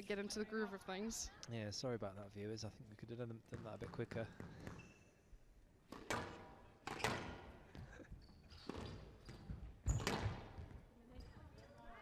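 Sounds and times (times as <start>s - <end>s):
shoes squeaking on court: 3.5s - 5.3s, 5.9s - 12.0s.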